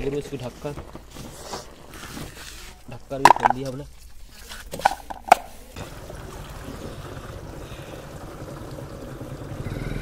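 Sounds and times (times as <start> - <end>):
water pouring into plastic container: 5.8 - 9.7.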